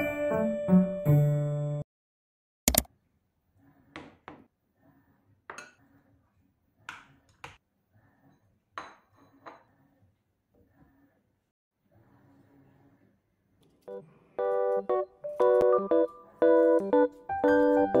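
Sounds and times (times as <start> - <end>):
kitchenware knocks and clinks: 8.8 - 9.7.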